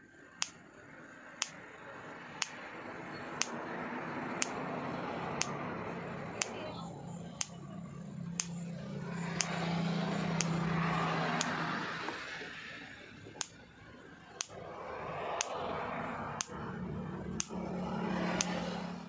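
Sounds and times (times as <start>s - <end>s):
electric fence ticking: 1.4s - 6.6s, 7.2s - 11.9s, 14.3s - 14.6s, 15.2s - 18.8s.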